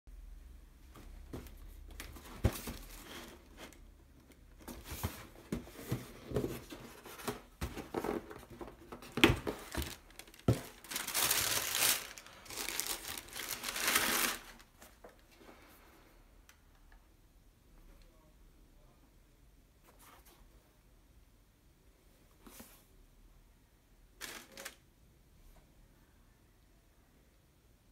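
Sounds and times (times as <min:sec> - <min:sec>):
cardboard box handled: 0:01.0 - 0:03.8, 0:04.6 - 0:14.6
tissue paper crinkling: 0:09.4 - 0:14.7, 0:24.2 - 0:24.8.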